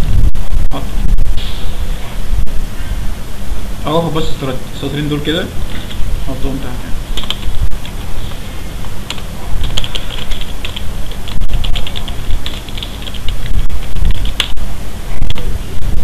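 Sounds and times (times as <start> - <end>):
steady low rumble: 0.0 - 16.0
typing on computer keyboard: 7.2 - 7.5, 9.1 - 14.5.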